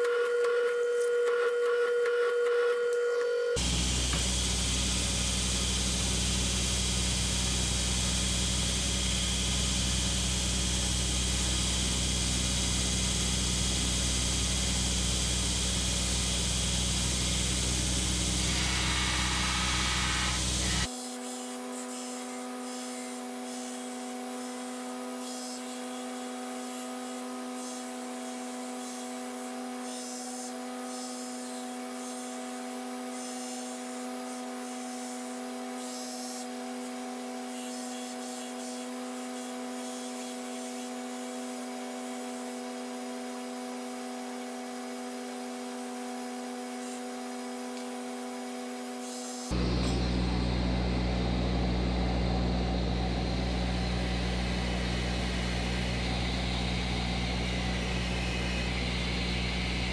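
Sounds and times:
belt grinder motor hum: 0:00.0 - 0:10.2, 0:10.8 - 0:42.2
grinding hiss: 0:16.0 - 0:20.9.

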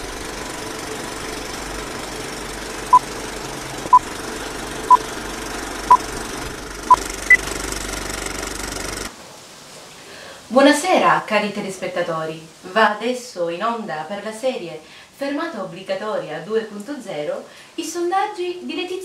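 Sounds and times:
film projector clatter: 0:00.0 - 0:09.1.

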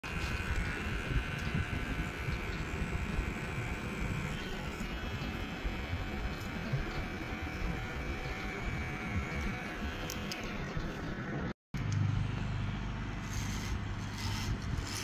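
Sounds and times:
electric hair clipper whining: 0:00.0 - 0:10.8.

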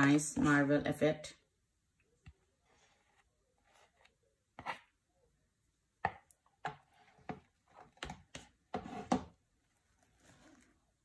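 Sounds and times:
spatula knocking and scraping bowls: 0:02.2 - 0:05.0, 0:06.0 - 0:09.4.

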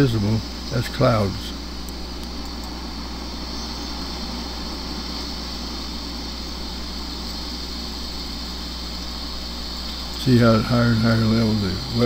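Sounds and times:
constant hiss: 0:00.0 - 0:12.0
low hum: 0:00.0 - 0:12.0.

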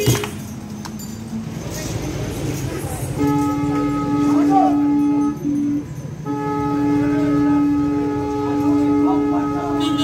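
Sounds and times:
conch shell blown: 0:03.2 - 0:10.0.

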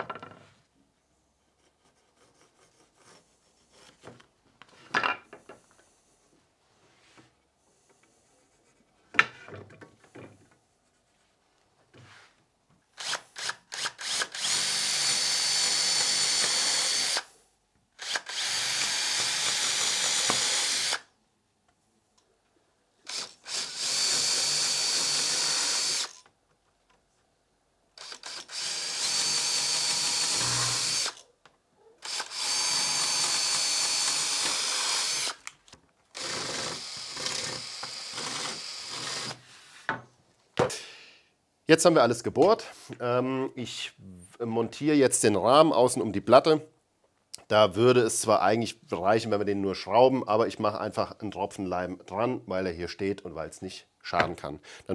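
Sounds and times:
power drill motor whine: 0:13.0 - 0:17.3, 0:18.0 - 0:21.1, 0:23.1 - 0:26.2, 0:28.0 - 0:31.2, 0:32.0 - 0:35.5, 0:36.2 - 0:39.4.

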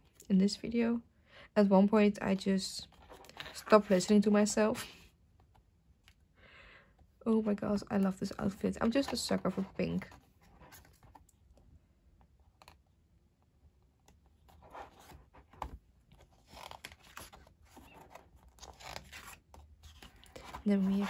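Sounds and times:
pages being turned: 0:14.5 - 0:21.0.

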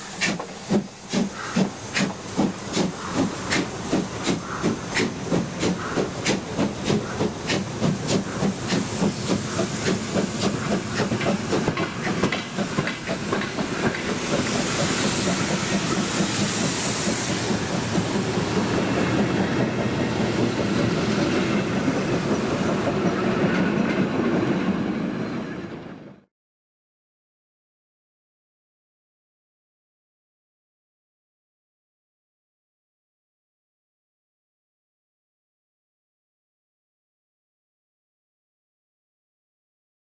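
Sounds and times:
hissing steam: 0:00.0 - 0:23.5
steam locomotive chuffing: 0:00.0 - 0:25.4
coach wheels clattering on rails: 0:00.1 - 0:24.7.

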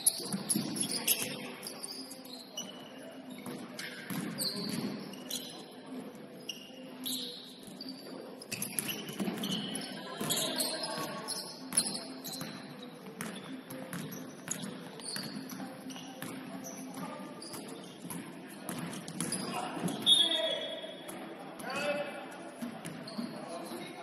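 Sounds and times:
sneakers squeaking on court: 0:00.0 - 0:21.3, 0:22.8 - 0:23.9.

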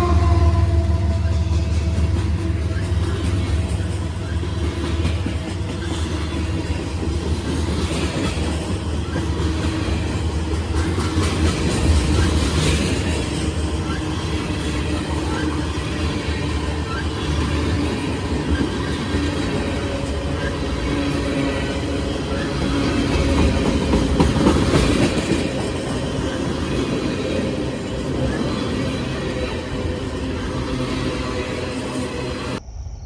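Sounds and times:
train wheels rumbling on rail: 0:00.0 - 0:32.6.

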